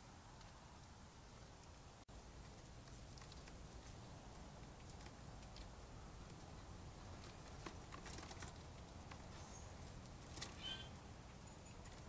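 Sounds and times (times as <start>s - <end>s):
faint background hum: 0.0s - 12.0s
birds moving at feeder: 0.2s - 12.0s
wing flutter: 2.4s - 11.0s
high bird chirp: 10.5s - 11.8s.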